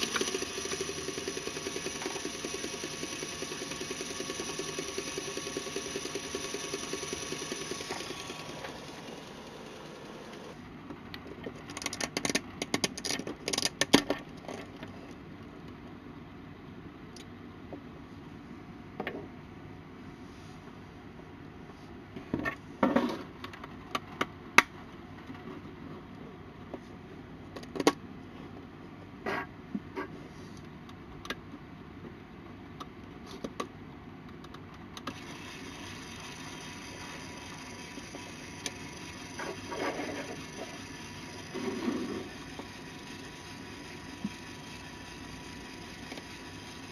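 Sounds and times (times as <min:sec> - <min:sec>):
small electric motor whirring: 0:00.0 - 0:10.6, 0:35.1 - 0:46.9
plastic clicks and rattles: 0:11.1 - 0:14.8.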